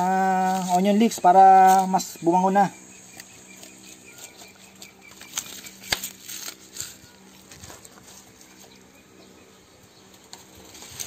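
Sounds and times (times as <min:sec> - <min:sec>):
hands handling vegetables crackling: 0:00.0 - 0:02.2, 0:03.1 - 0:08.8
insects chirping: 0:00.0 - 0:11.0.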